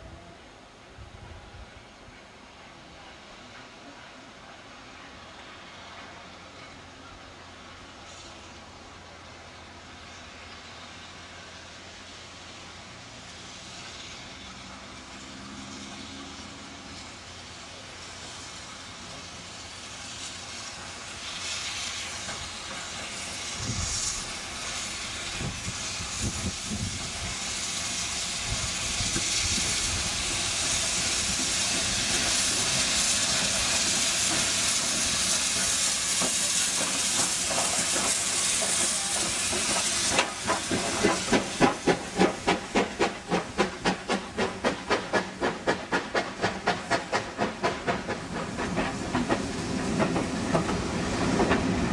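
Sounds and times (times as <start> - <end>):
steam locomotive hiss: 0.0 - 51.9
train wheels clattering over rail joints: 22.0 - 51.9.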